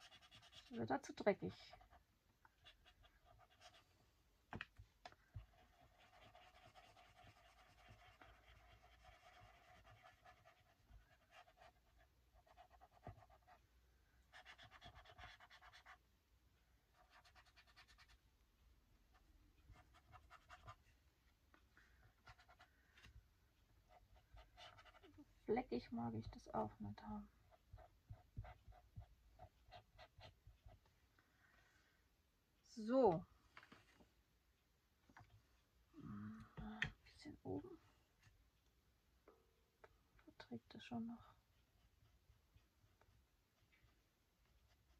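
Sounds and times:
brush rubbing over paper: 5.4s - 13.6s.

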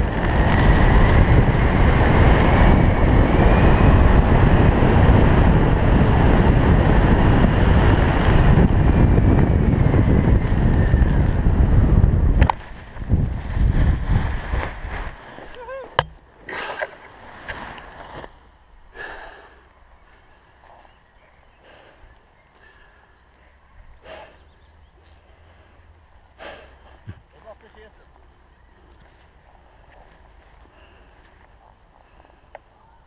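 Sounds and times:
wind rushing over microphone: 0.0s - 15.9s.

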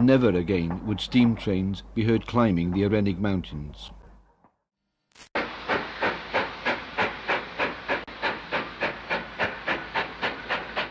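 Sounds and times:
steam locomotive chuffing: 5.4s - 10.9s.

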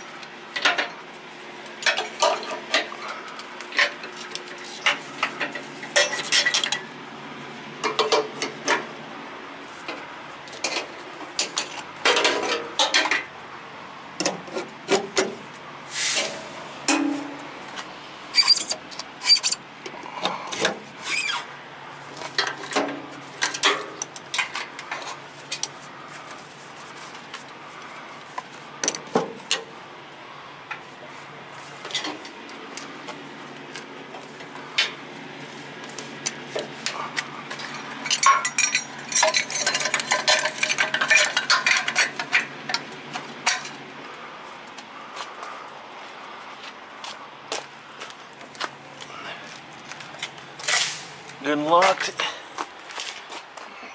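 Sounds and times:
rattling metal clatter: 1.8s - 6.9s, 10.6s - 13.3s, 36.4s - 43.8s
metal clinks and knocks: 36.2s - 43.8s.

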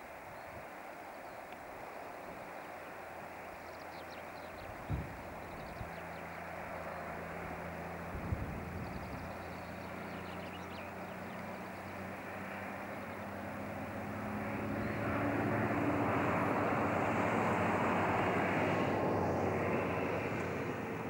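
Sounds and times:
truck diesel engine droning: 5.7s - 21.0s.

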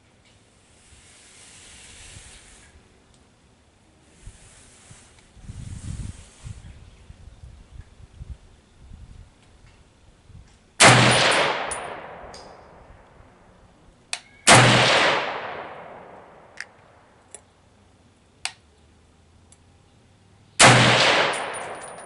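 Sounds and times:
faint small clicks: 3.1s - 3.3s, 18.4s - 18.6s
rifle shots with echo: 10.8s - 12.7s, 14.5s - 16.5s, 20.6s - 22.0s.

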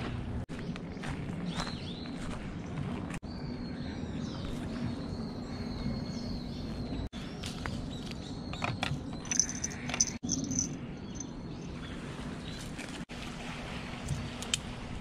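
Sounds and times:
fishing tackle clicks and rustles: 8.5s - 10.8s.

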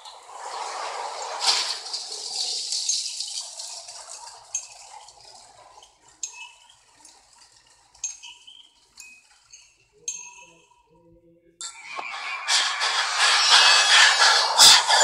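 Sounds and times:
teaspoon clinking in teacup: 8.0s - 10.8s.

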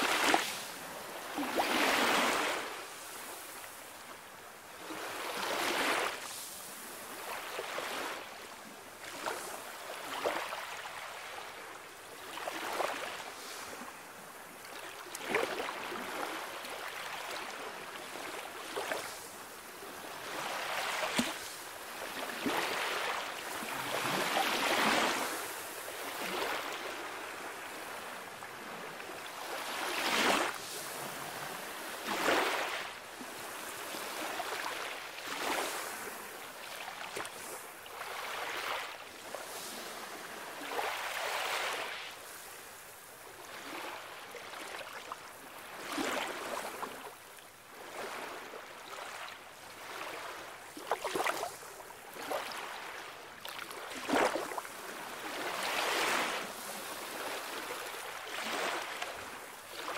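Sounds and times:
sea waves washing onto shore: 12.2s - 47.3s.

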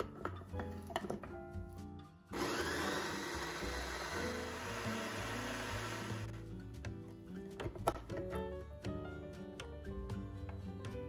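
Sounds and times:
background music with low beat: 5.5s - 11.0s.

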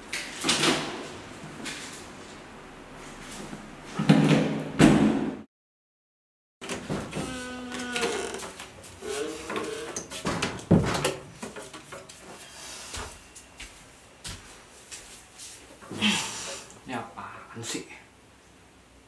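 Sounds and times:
footsteps walking in: 11.3s - 15.9s.

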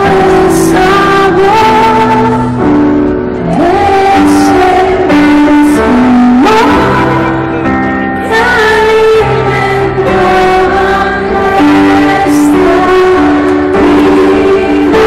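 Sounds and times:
live pop band playing: 0.0s - 15.0s.

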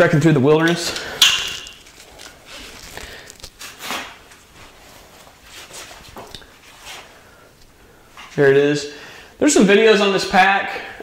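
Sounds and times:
backpack straps rustling: 0.9s - 6.5s.

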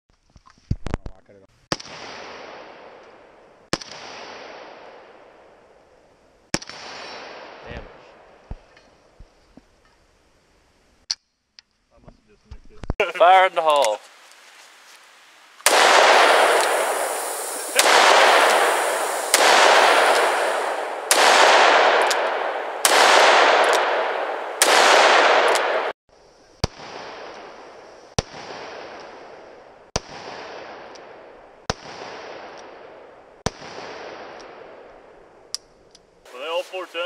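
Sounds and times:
revolver shots with echo: 15.7s - 25.9s.

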